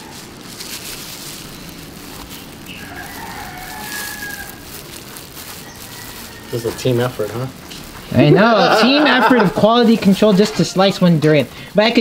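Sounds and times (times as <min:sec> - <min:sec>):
background hiss: 0:00.0 - 0:12.0
rooster crowing: 0:02.7 - 0:07.4.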